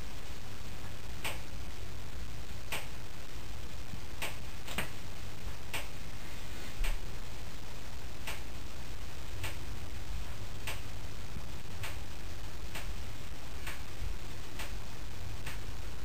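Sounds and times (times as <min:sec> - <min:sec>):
low hum and hiss: 0:00.0 - 0:16.0
sharp clicks: 0:01.2 - 0:01.5, 0:02.7 - 0:02.9, 0:04.2 - 0:04.9, 0:05.7 - 0:05.9, 0:08.2 - 0:08.5, 0:09.4 - 0:09.6, 0:10.6 - 0:10.9, 0:12.7 - 0:13.0, 0:13.6 - 0:13.9, 0:14.6 - 0:14.8, 0:15.4 - 0:15.7.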